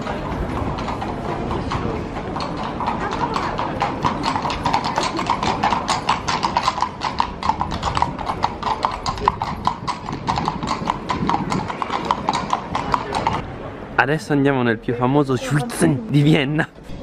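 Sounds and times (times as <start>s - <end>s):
horse hooves clip-clopping on paving: 0.0s - 13.4s.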